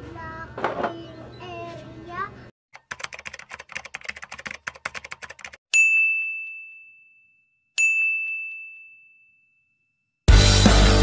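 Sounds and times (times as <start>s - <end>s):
keyboard typing clicks: 2.8s - 5.6s
bell dings: 5.7s - 10.2s.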